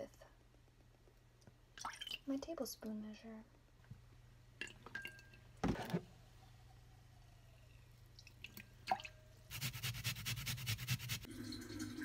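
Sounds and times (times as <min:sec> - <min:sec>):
food scraping on metal grater: 0:09.5 - 0:11.3.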